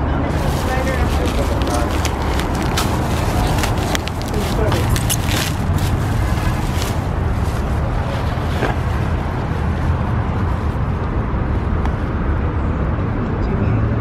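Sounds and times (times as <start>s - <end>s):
low outdoor rumble: 0.0s - 14.0s
plastic bag rustling: 0.3s - 9.3s.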